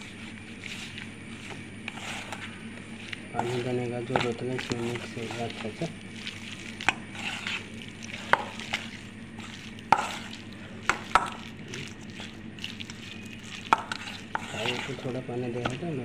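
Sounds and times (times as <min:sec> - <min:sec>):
spoon scraping wet batter: 0:00.0 - 0:16.0.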